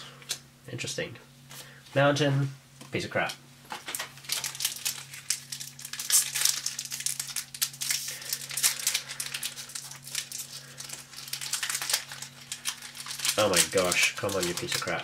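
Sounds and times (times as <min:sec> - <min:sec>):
steady low hum: 0:00.0 - 0:15.0
foil wrapper crinkling: 0:03.7 - 0:15.0.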